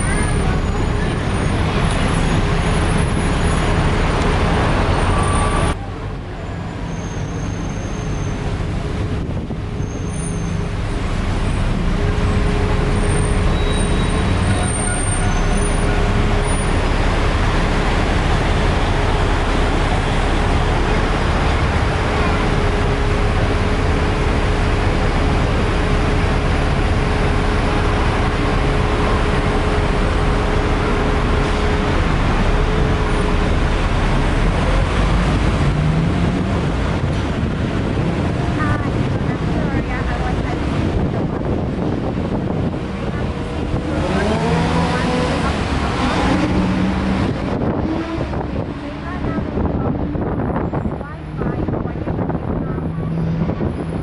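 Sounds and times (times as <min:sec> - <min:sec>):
road and traffic noise: 0:00.0 - 0:54.0.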